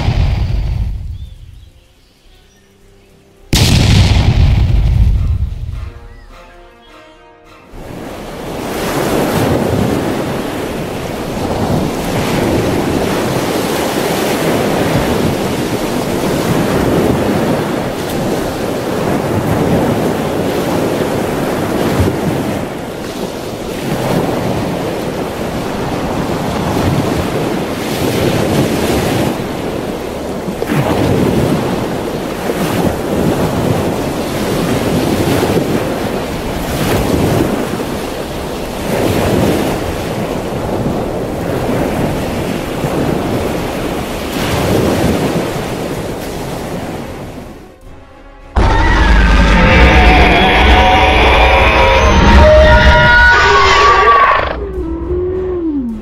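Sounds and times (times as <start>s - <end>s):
ocean waves surging: 0.0s - 1.4s, 7.5s - 47.8s, 48.5s - 56.0s.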